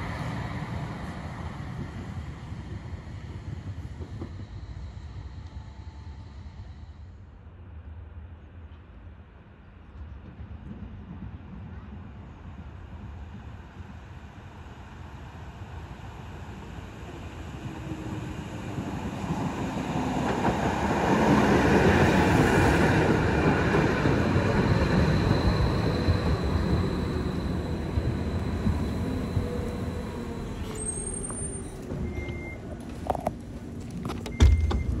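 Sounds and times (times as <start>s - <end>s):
train wheels rumbling on rails: 0.0s - 6.9s, 9.7s - 35.0s
faint high squeal: 24.7s - 32.6s.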